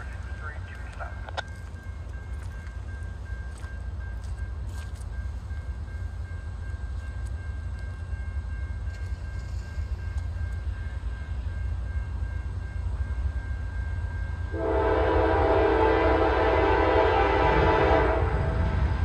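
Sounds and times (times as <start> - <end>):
diesel locomotive rumble: 0.0 - 19.0
locomotive air horn: 14.5 - 18.7.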